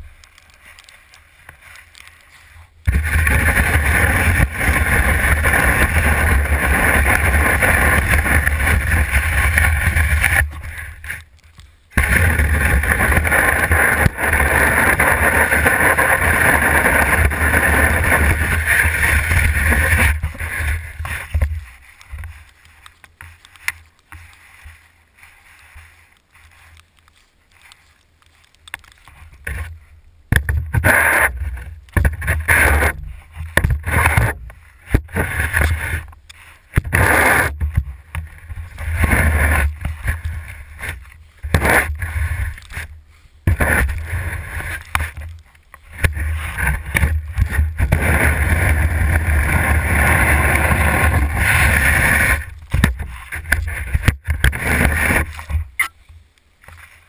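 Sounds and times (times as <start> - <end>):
shovel scraping concrete: 12.0 - 22.6, 30.4 - 37.8, 38.7 - 42.9, 43.5 - 55.9.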